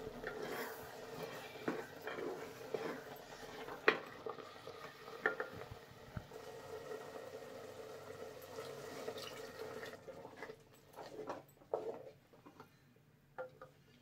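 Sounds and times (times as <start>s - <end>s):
wooden spoon scraping clay pot: 0.0s - 5.6s, 10.2s - 12.6s
liquid pouring and splashing: 2.2s - 11.2s.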